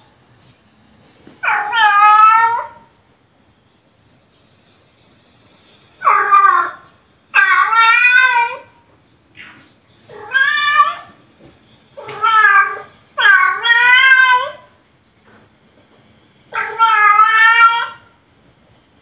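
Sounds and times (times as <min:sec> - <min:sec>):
recorded cat meows: 0:01.4 - 0:02.9, 0:06.0 - 0:08.8, 0:09.4 - 0:11.2, 0:12.0 - 0:14.7, 0:16.5 - 0:18.1.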